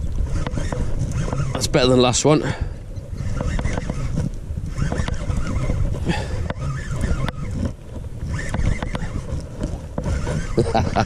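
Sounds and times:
wind buffeting microphone: 0:00.0 - 0:11.0
sharp clicks: 0:03.1 - 0:05.8, 0:06.4 - 0:10.6.

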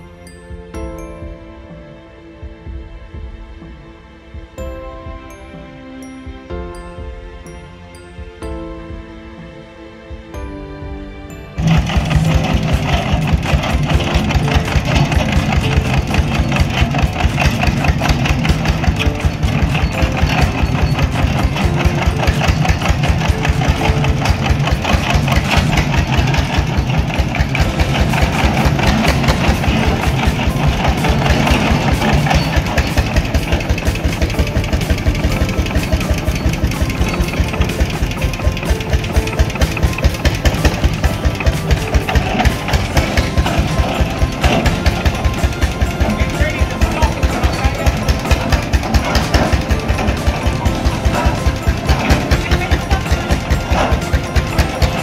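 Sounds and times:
tractor engine idling: 0:11.3 - 0:55.0.

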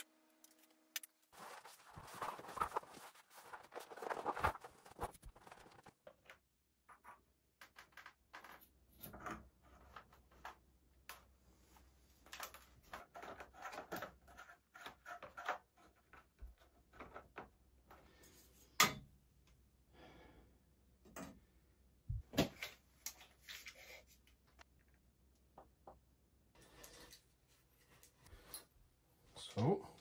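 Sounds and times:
metal pipe fittings clicking and scraping: 0:12.3 - 0:19.0.

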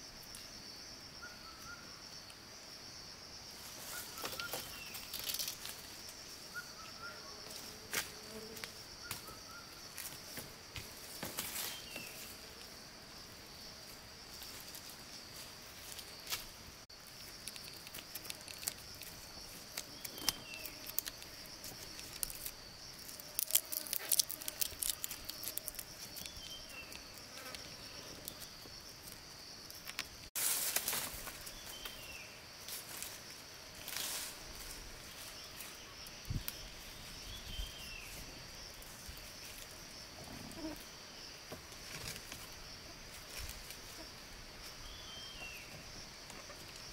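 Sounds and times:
insects buzzing high: 0:00.0 - 0:46.9
clicks and crackles: 0:17.1 - 0:27.6, 0:28.2 - 0:30.3.

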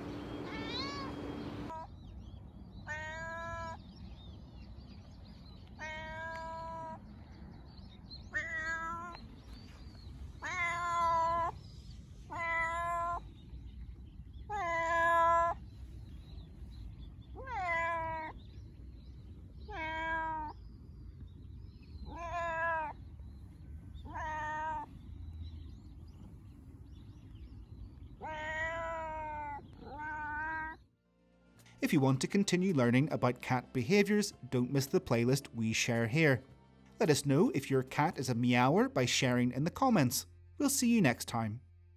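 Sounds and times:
cat meowing: 0:00.1 - 0:01.9, 0:02.9 - 0:03.8, 0:05.8 - 0:07.0, 0:08.3 - 0:09.2, 0:10.4 - 0:11.6, 0:12.3 - 0:13.2, 0:14.5 - 0:15.6, 0:17.4 - 0:18.4, 0:19.7 - 0:20.6, 0:22.0 - 0:23.0, 0:24.0 - 0:25.0, 0:28.2 - 0:30.8.

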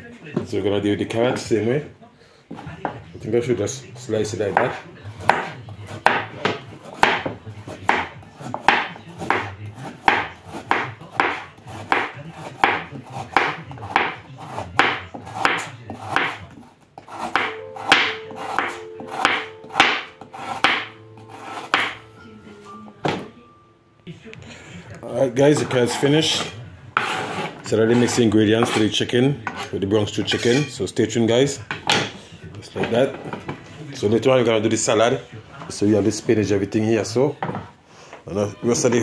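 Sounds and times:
knife chopping carrot on board: 0:04.4 - 0:22.0.

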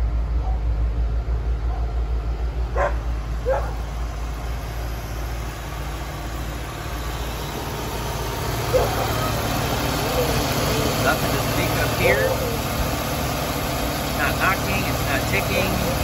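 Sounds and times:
car engine idling: 0:00.0 - 0:16.0
dog barking: 0:00.4 - 0:00.7, 0:01.6 - 0:02.0, 0:02.7 - 0:03.9, 0:08.6 - 0:09.3, 0:10.0 - 0:10.4.

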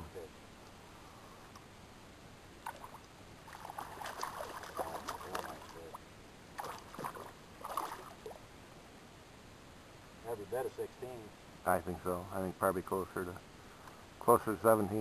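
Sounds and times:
fish splashing and thrashing: 0:02.6 - 0:05.9, 0:06.6 - 0:08.2.

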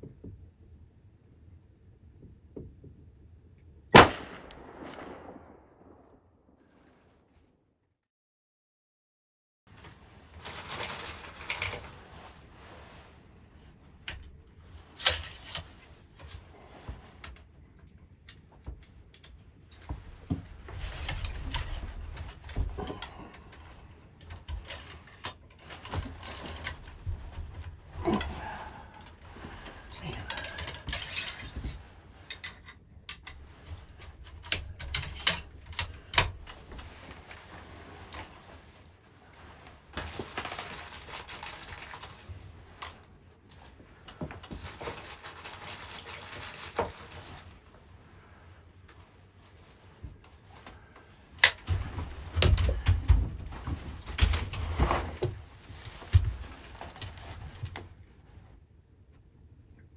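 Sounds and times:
low wind rumble: 0:04.2 - 0:06.9
gear clicking and rustling: 0:13.9 - 0:47.9.

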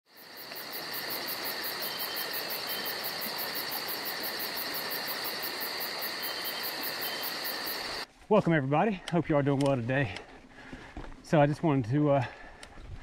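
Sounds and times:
very high pulsing insect trill: 0:00.1 - 0:08.0
insects buzzing: 0:00.1 - 0:08.1.

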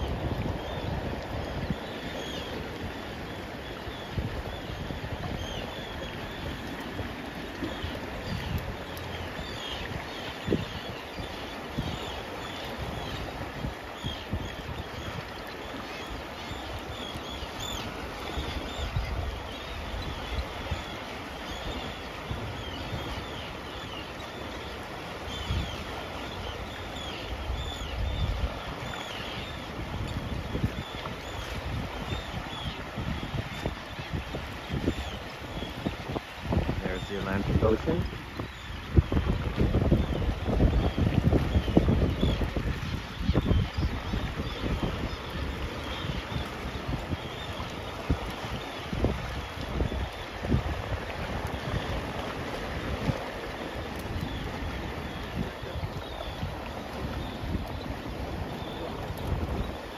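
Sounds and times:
seabirds calling: 0:00.0 - 0:59.9
water lapping and gurgling: 0:00.0 - 0:59.9
wind rumbling on microphone: 0:00.0 - 0:59.9.

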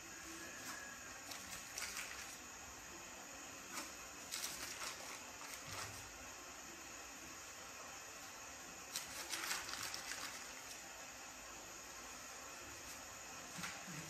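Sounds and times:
steady low hiss: 0:00.0 - 0:14.0
baking paper crinkling: 0:00.2 - 0:02.5, 0:03.7 - 0:06.1, 0:08.9 - 0:10.9, 0:12.8 - 0:14.0.

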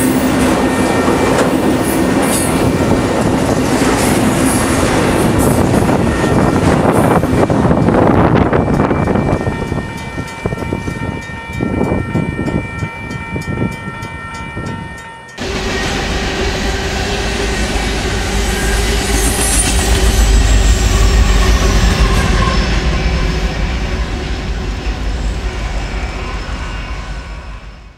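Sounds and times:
freight train cars rolling: 0:00.0 - 0:27.6
high ringing tones: 0:05.6 - 0:23.6
diesel locomotive rumble: 0:15.4 - 0:27.7.

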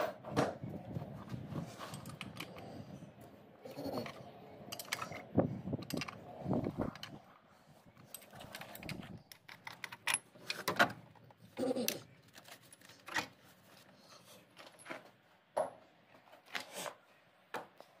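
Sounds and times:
metal parts clinking: 0:04.0 - 0:07.2, 0:08.0 - 0:10.7.

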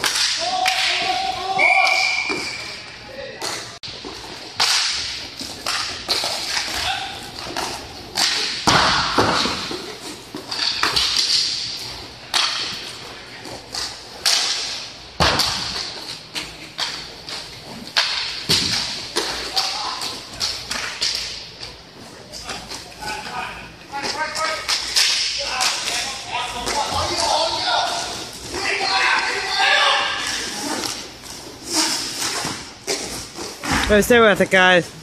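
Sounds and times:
hockey stick hitting puck: 0:00.0 - 0:01.3, 0:04.6 - 0:13.0, 0:13.7 - 0:21.4, 0:24.0 - 0:29.4.

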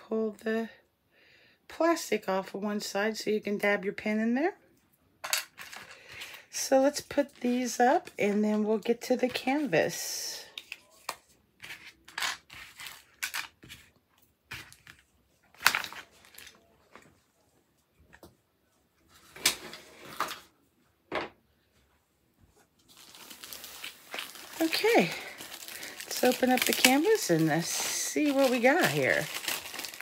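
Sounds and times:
plastic rustling: 0:10.6 - 0:17.2, 0:22.5 - 0:30.0.

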